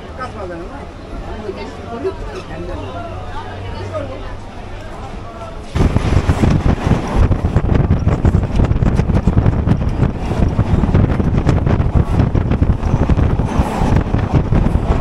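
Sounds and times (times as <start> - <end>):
train wheels rumbling and clattering: 5.7 - 15.0
wind buffeting microphone: 5.7 - 15.0.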